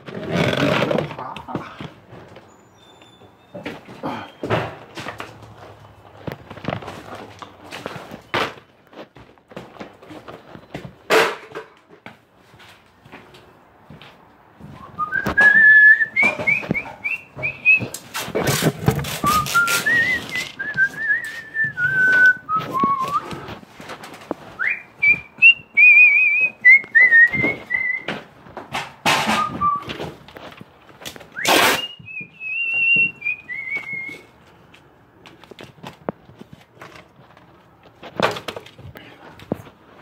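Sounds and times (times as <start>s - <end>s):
handling knocks and rustles: 0.0s - 40.0s
person whistling a tune: 14.8s - 18.0s, 19.1s - 23.5s, 24.6s - 28.1s, 29.4s - 30.0s, 31.4s - 34.3s.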